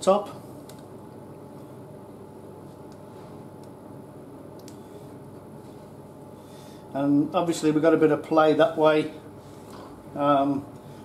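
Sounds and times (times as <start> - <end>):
low background hum: 0.0 - 11.0
faint small clicks: 4.6 - 4.8.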